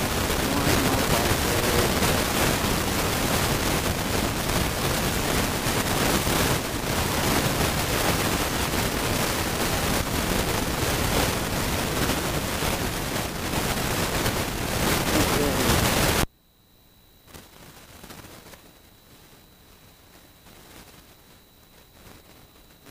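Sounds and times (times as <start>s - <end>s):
road noise: 0.0s - 3.0s
wind rushing over microphone: 0.0s - 16.3s.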